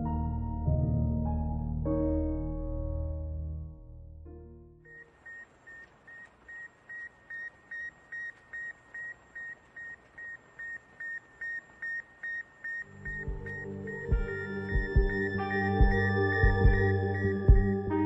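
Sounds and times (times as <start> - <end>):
soft piano music: 0.0 - 5.0, 12.9 - 18.0
rapid high electronic beeps: 4.9 - 17.7.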